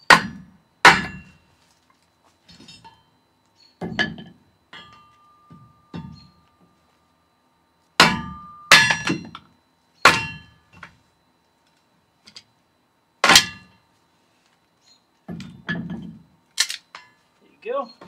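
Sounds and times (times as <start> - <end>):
hammer striking log on metal blade: 0.1 - 1.4, 8.0 - 9.4, 10.0 - 10.5, 13.2 - 13.7
metallic ring: 2.4 - 6.4, 8.0 - 10.8, 13.3 - 13.8, 15.4 - 18.0.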